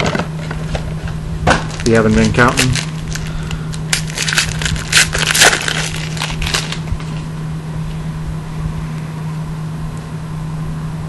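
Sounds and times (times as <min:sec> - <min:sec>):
steady low hum: 0:00.0 - 0:11.0
foil wrapper tearing and crinkling: 0:01.5 - 0:07.3.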